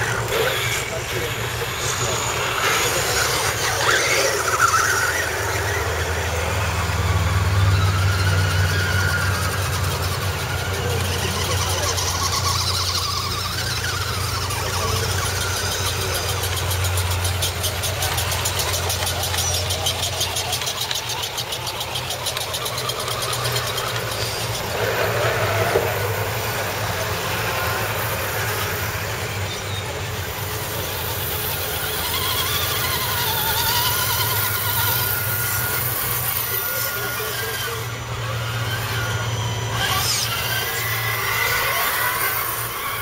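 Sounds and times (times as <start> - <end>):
small electric motors whining: 0.0 - 43.0.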